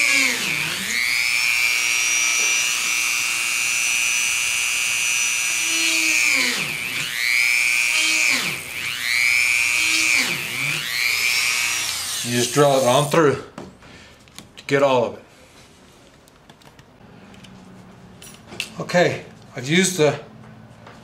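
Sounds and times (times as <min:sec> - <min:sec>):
rotary tool drilling leather: 0:00.0 - 0:13.1.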